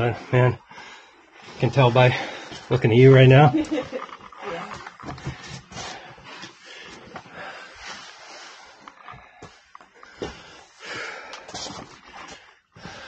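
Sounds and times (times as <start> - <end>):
person breathing hard: 5.2 - 13.0.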